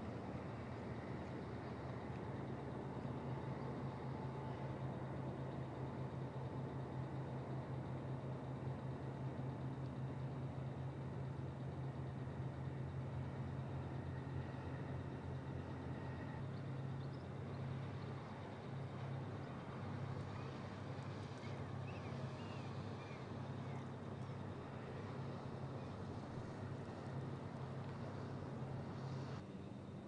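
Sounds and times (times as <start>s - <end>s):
low engine hum: 0.0s - 30.0s
outdoor background noise: 0.0s - 30.0s
faint high chirps: 20.1s - 23.9s.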